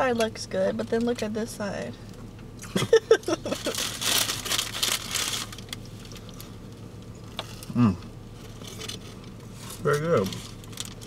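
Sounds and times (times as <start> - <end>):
paper food wrapper crinkling: 3.5 - 6.5, 9.6 - 11.0
person humming while tasting: 7.7 - 8.1.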